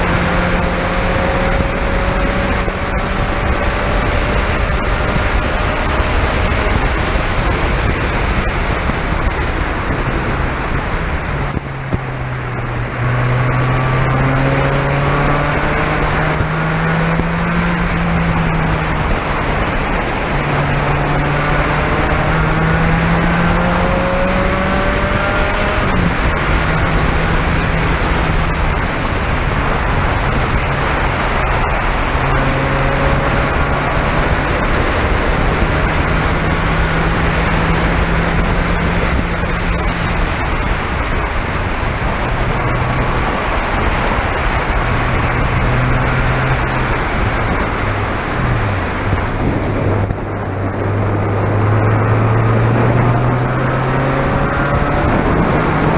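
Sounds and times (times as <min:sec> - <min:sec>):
race car engine: 0:00.0 - 0:55.9
wind and water spray rushing: 0:01.5 - 0:14.1, 0:24.3 - 0:55.9.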